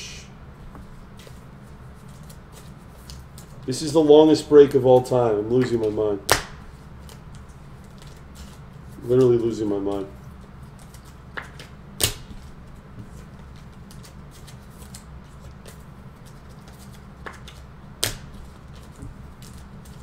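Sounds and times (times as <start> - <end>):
low electrical hum: 0.0 - 20.0
trading cards snapping and clicking: 5.0 - 8.6, 10.8 - 12.5, 13.6 - 20.0.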